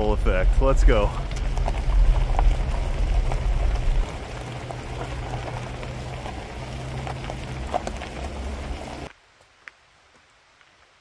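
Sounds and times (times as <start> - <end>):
vehicle engine and road hum: 0.0 - 9.1
gravel crackling under tyres: 0.0 - 11.0.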